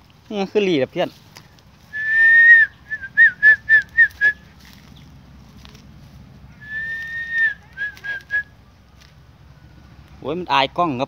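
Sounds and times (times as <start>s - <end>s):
person whistling: 1.9s - 4.4s, 6.6s - 8.5s.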